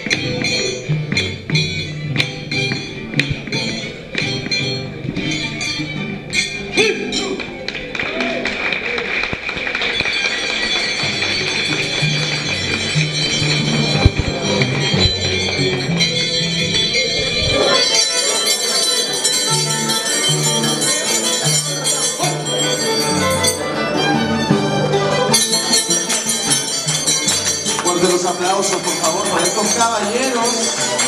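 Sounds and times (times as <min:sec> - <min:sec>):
harp playing: 0:00.0 - 0:08.1, 0:09.8 - 0:31.0
violin playing: 0:10.7 - 0:31.0.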